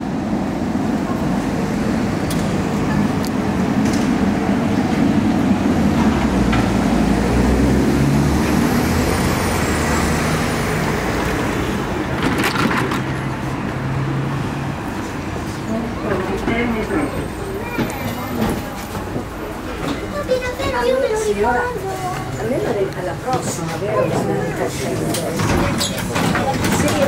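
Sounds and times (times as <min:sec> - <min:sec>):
street traffic: 0:00.0 - 0:27.0
tram hum and rumble: 0:00.0 - 0:27.0
tram clicks: 0:02.2 - 0:07.3, 0:11.0 - 0:13.9, 0:14.8 - 0:27.0.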